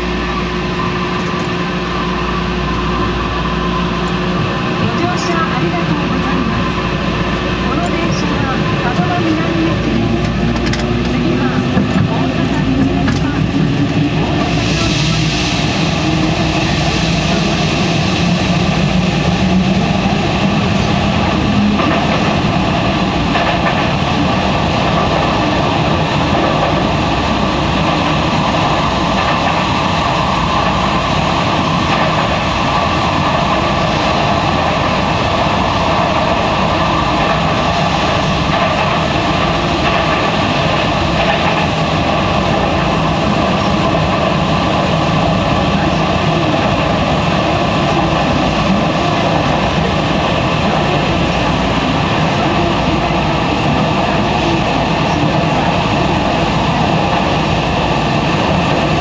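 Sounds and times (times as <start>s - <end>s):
subway train running in tunnel: 0.0s - 59.0s.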